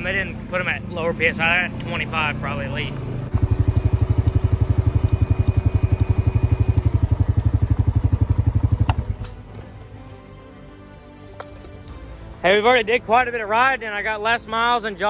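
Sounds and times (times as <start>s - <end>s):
atv engine idling: 0.0s - 10.0s
click: 3.8s - 4.4s, 5.0s - 5.6s, 8.8s - 9.6s.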